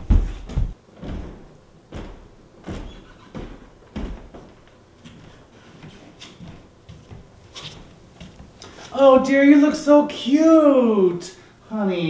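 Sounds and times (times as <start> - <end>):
footsteps on wooden floor: 0.0 - 9.0.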